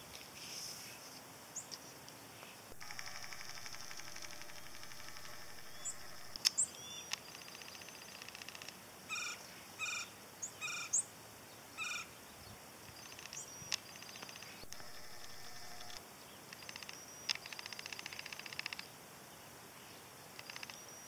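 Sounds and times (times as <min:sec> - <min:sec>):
sharp clicks: 0:02.7 - 0:08.8, 0:13.1 - 0:18.9, 0:20.4 - 0:20.9
high chirps: 0:02.8 - 0:06.4.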